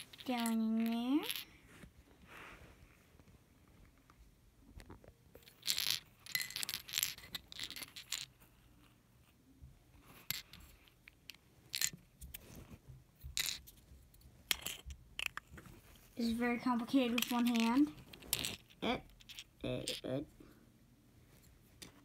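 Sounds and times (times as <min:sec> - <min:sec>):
plastic toy bricks clicking and rattling: 0:00.0 - 0:01.5, 0:05.4 - 0:08.4, 0:10.1 - 0:12.3, 0:13.3 - 0:13.8, 0:14.5 - 0:15.6, 0:16.9 - 0:20.2.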